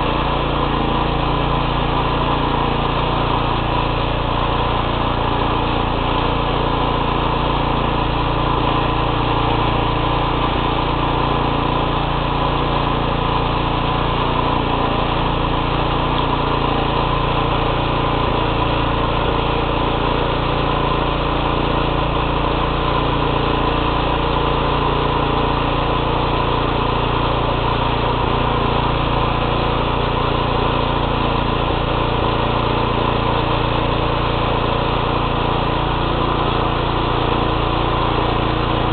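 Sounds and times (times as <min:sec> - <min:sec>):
small tractor engine running: 0:00.0 - 0:38.9.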